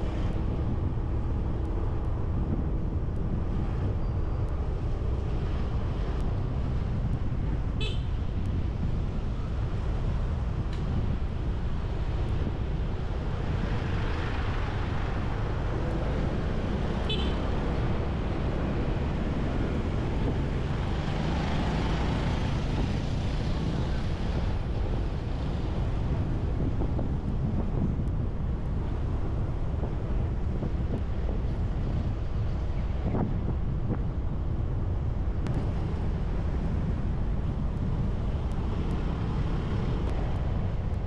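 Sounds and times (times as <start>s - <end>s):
vehicles passing: 0.0s - 41.0s
wind buffeting microphone: 0.0s - 41.0s.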